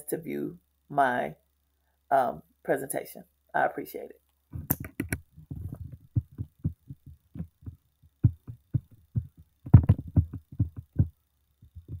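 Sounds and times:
laptop keys and trackpad tapping: 0:04.6 - 0:12.0.

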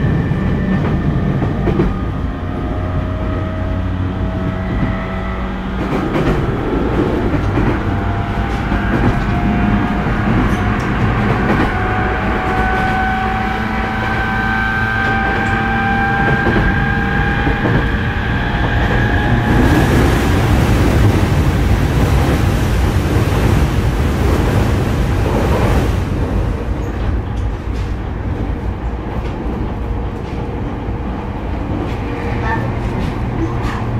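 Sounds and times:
train wheels rumbling: 0:00.0 - 0:33.9.

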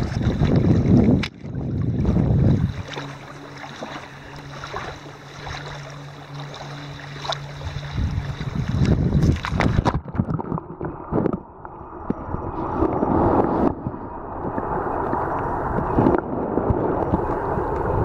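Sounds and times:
water lapping: 0:00.0 - 0:11.5
muffled rushes of water: 0:00.0 - 0:18.0.

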